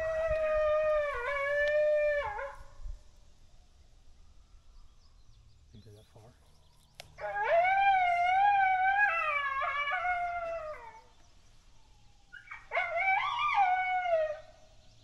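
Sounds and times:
coyote howling: 0:00.0 - 0:02.7, 0:07.2 - 0:11.2, 0:12.3 - 0:14.6.

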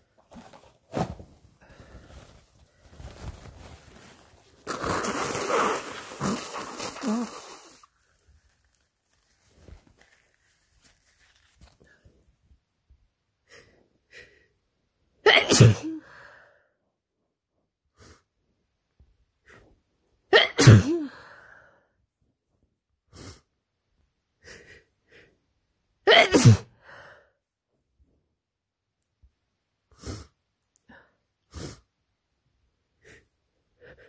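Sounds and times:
person sneezing: 0:04.7 - 0:07.9, 0:15.3 - 0:16.0, 0:20.3 - 0:21.2, 0:26.1 - 0:26.8.

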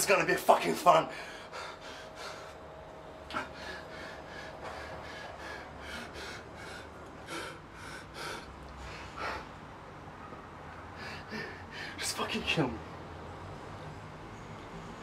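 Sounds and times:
man breathing hard: 0:01.0 - 0:09.9, 0:10.6 - 0:12.0.

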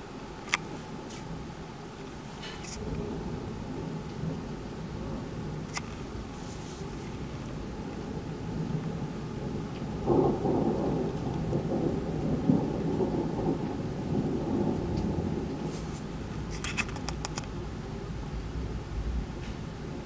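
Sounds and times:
rolling thunder: 0:02.8 - 0:16.6
sharp clicks: 0:16.5 - 0:17.5.

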